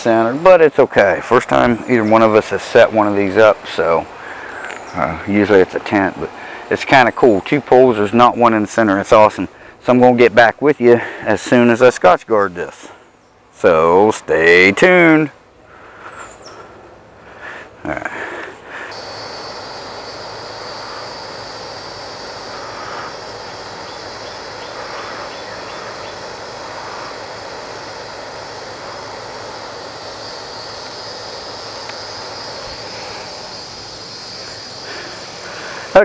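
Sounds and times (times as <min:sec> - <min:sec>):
background hiss: 0:00.0 - 0:36.0
insect chorus shrilling: 0:00.6 - 0:07.4, 0:17.4 - 0:36.0.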